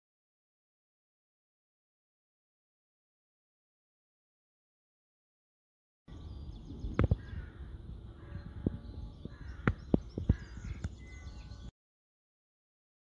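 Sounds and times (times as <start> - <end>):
crow cawing: 7.1 - 11.0.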